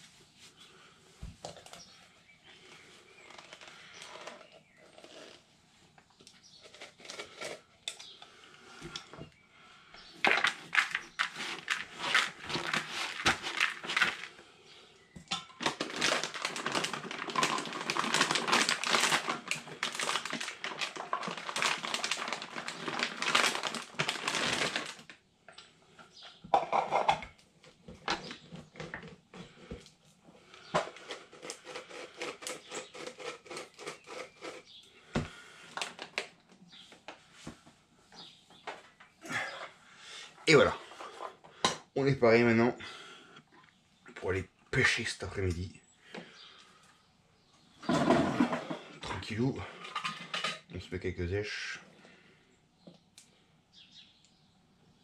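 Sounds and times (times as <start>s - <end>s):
bait pellets rattling in bucket: 10.2s - 14.3s, 15.6s - 25.1s.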